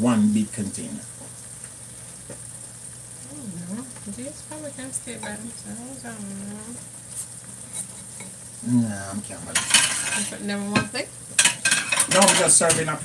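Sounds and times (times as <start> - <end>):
food sizzling in frying pan: 0.0 - 13.0
spoon scraping and clinking: 9.6 - 10.3.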